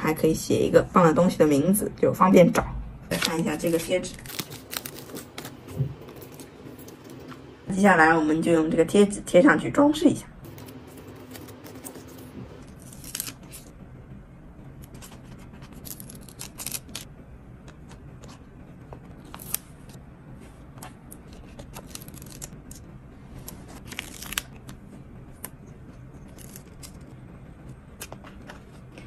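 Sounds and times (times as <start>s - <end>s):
plastic crinkling: 3.7s - 7.3s.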